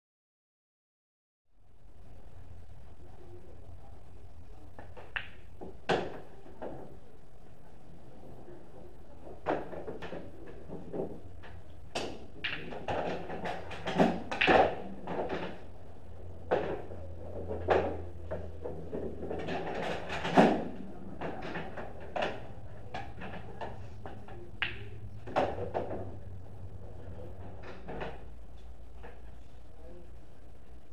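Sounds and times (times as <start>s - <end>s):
steady low hum: 1.5s - 30.9s
pool balls clicking: 4.7s - 7.0s, 8.2s - 29.2s.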